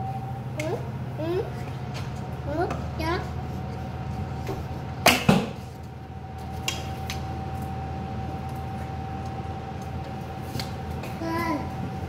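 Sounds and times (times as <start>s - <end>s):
air conditioner humming: 0.0s - 12.0s
faint steady whine: 0.0s - 12.0s.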